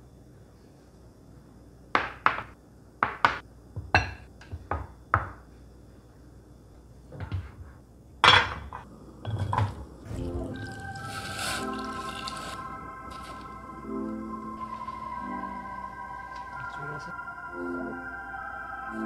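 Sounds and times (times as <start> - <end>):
dishes knocking on wood: 2.0 - 5.4.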